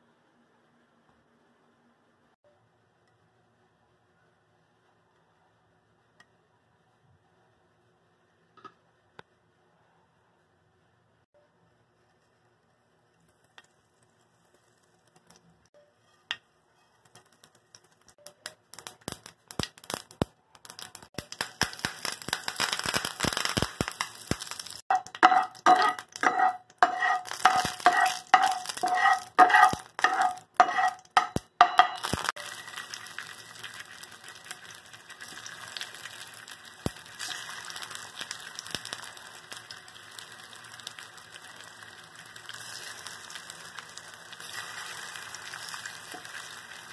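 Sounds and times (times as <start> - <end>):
seeds popping in hot oil: 12.9 - 46.9
slices sizzling in oil: 13.3 - 46.9
spatula scraping and squeaking: 15.8 - 17.3, 24.9 - 32.3
leaves spitting in oil: 32.1 - 46.9.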